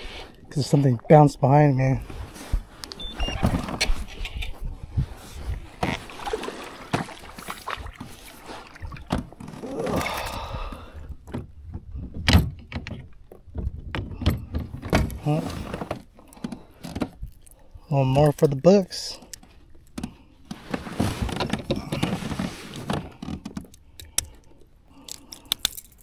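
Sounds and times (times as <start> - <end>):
gear knocking in a kayak: 11.2 - 17.2.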